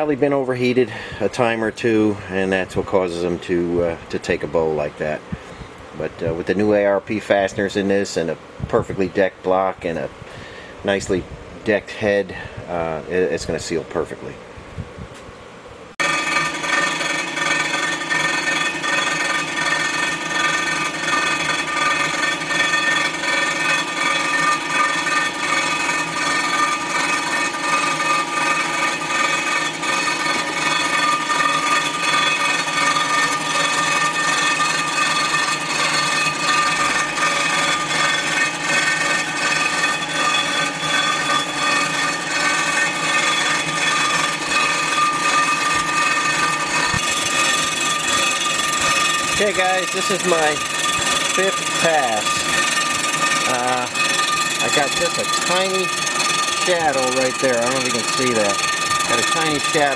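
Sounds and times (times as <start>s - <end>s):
high ringing tones: 16.0s - 59.9s
surfacing machine cutting metal: 16.0s - 59.9s.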